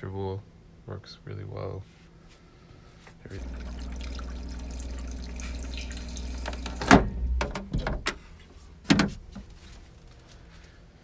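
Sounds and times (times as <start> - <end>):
steady low hum: 0.0 - 11.0
toilet water running: 3.3 - 7.6.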